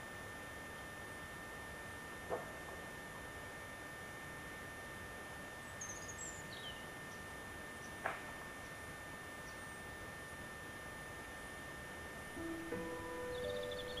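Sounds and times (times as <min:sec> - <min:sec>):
constant high-pitched tone: 0:00.0 - 0:14.0
faint bird chirps: 0:05.6 - 0:08.0, 0:12.6 - 0:14.0.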